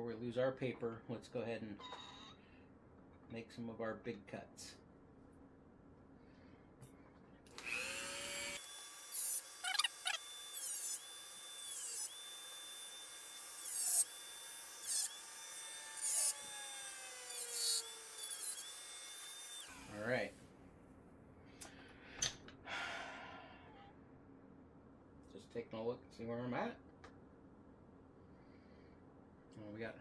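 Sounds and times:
rotary tool cutting metal: 0:07.5 - 0:20.0.

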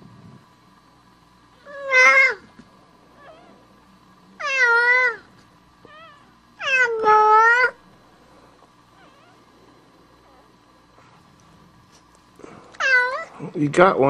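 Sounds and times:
cat meowing: 0:01.6 - 0:02.5, 0:04.4 - 0:07.8, 0:09.0 - 0:09.4, 0:12.8 - 0:13.3.

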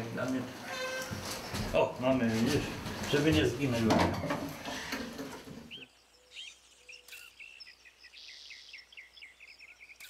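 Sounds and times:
faint steady background noise: 0:00.0 - 0:10.0
songbirds chirping: 0:00.0 - 0:10.0.

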